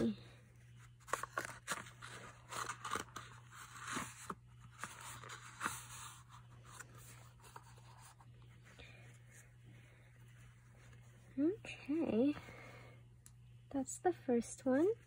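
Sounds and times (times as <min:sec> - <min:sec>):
paper packaging rustling: 0:00.8 - 0:08.6.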